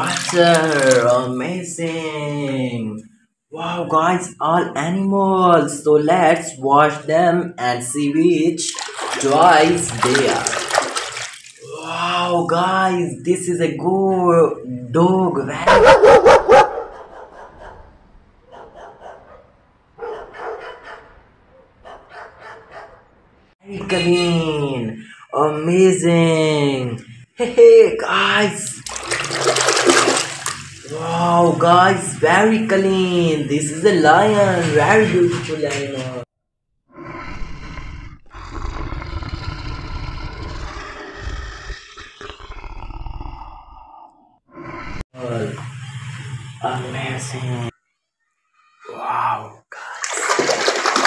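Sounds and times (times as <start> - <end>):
dog barking: 15.7 - 23.1
lion roaring: 36.9 - 45.0.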